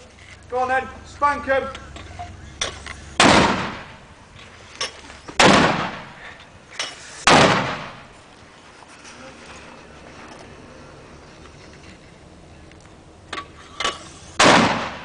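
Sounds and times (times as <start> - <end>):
mortar firing: 3.2 - 4.1, 5.4 - 6.4, 7.2 - 8.2, 14.4 - 15.0.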